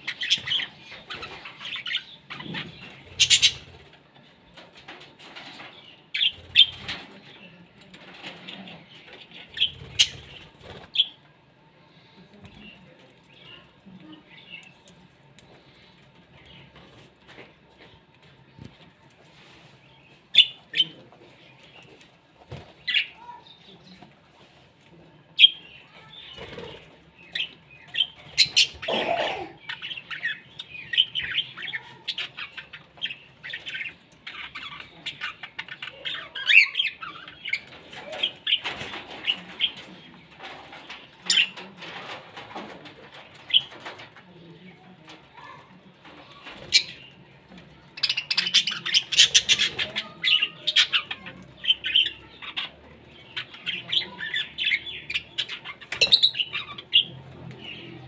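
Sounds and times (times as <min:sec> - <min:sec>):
budgerigars chirping: 0:00.0 - 0:03.7, 0:48.0 - 0:57.8.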